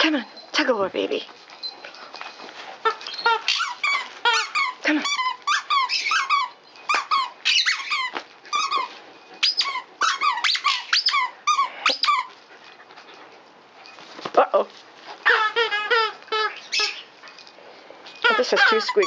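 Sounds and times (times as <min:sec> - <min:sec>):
dog toy squeaking: 0:01.6 - 0:12.4, 0:15.2 - 0:17.2, 0:18.1 - 0:19.0.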